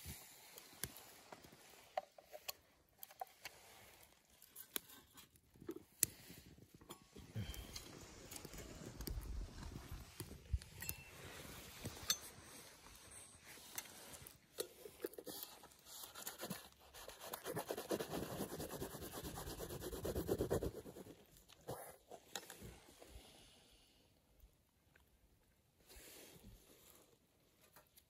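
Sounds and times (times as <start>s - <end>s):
rapid scratching strokes: 17.0s - 21.0s.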